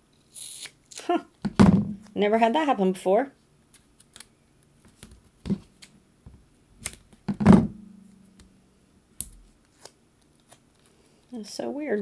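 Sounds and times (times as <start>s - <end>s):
thud with low ring: 7.5s - 8.2s.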